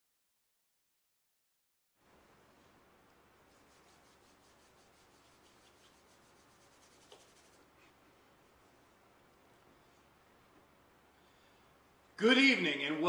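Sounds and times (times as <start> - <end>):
faint room hiss: 2.0 - 13.0.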